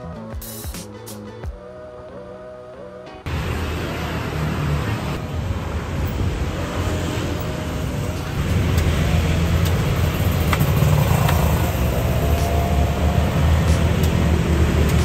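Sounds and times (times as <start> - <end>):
scooters and cars passing: 3.2 - 15.0.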